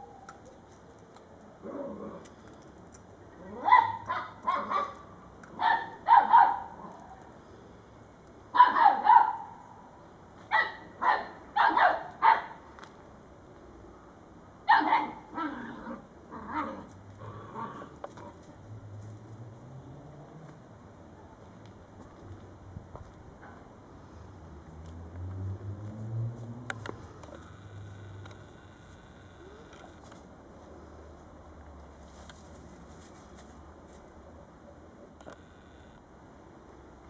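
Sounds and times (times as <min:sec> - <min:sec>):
dog barking: 0:03.6 - 0:05.0, 0:05.6 - 0:06.8, 0:08.6 - 0:09.6, 0:10.5 - 0:12.6, 0:14.7 - 0:15.2.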